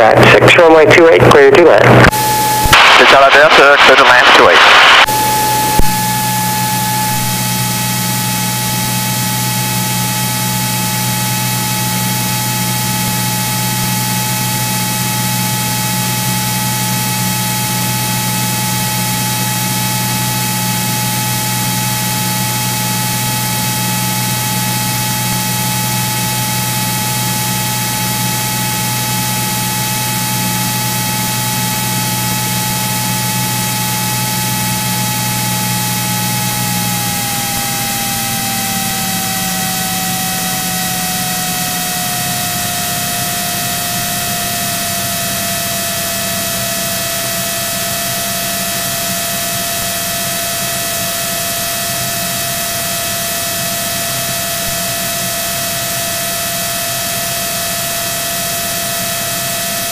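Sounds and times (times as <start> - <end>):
aircraft engine and propeller drone: 0.0 - 59.9
thin high tone: 4.9 - 8.7.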